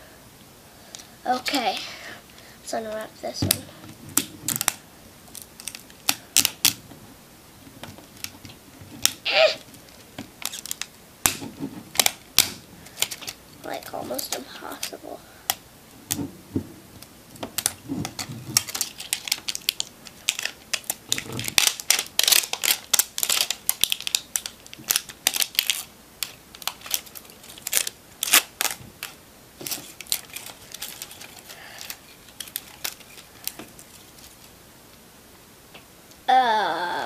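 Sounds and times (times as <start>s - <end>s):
plastic wrapping crinkling: 3.5s - 6.8s, 7.9s - 15.0s, 17.0s - 34.6s.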